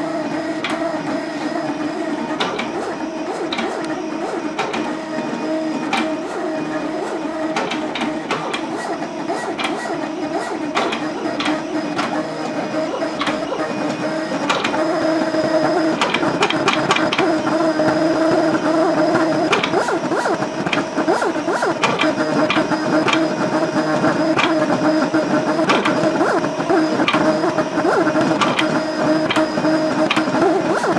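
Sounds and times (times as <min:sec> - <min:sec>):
cutter motors whining: 0:00.0 - 0:30.9.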